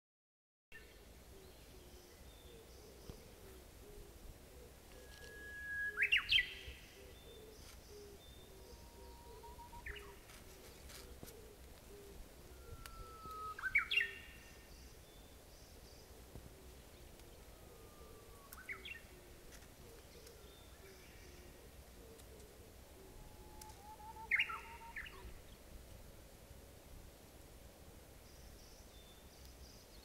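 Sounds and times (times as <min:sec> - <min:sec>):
bush warbler singing: 0:04.6 - 0:25.7.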